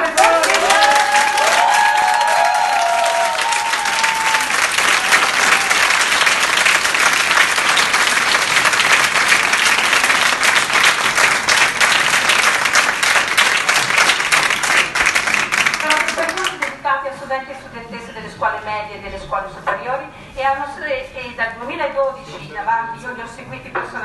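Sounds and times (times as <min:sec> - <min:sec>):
crowd applauding: 0:00.0 - 0:16.7.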